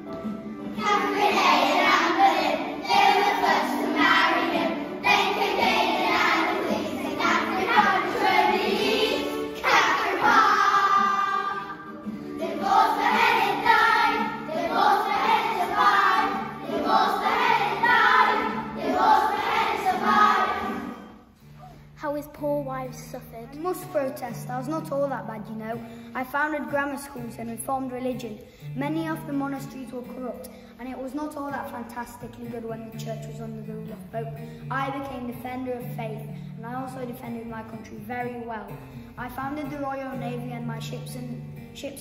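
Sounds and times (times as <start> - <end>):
young children singing: 0.7 - 21.2.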